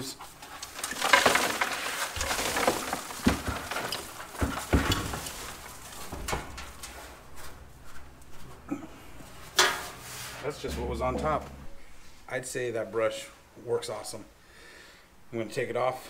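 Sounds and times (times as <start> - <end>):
leaves pouring into plastic can: 0.8 - 4.5.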